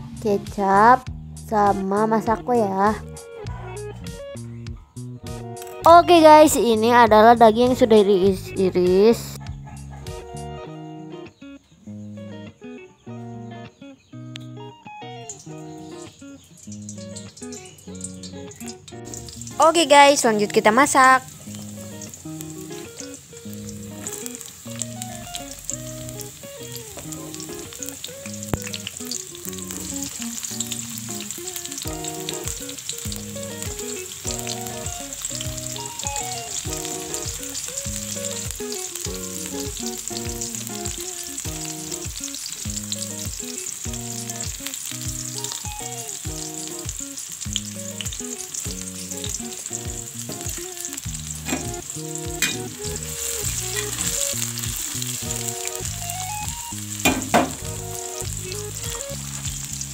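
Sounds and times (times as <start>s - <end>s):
food sizzling in a wok: 15.3s - 59.9s
utensil knocking against pan: 57.0s - 57.6s.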